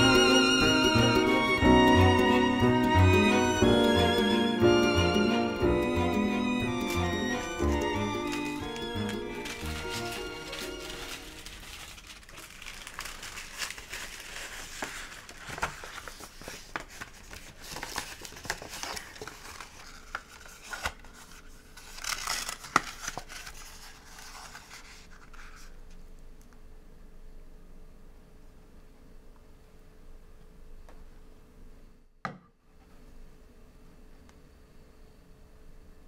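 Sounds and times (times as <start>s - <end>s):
dry bamboo sheaths crackling: 8.3s - 15.8s.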